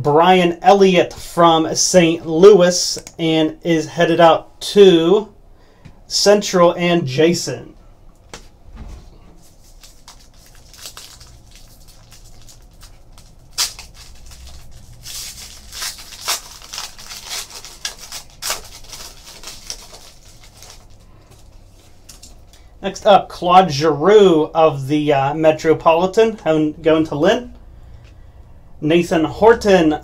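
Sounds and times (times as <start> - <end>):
foil wrapper crinkling and tearing: 9.4 - 22.6.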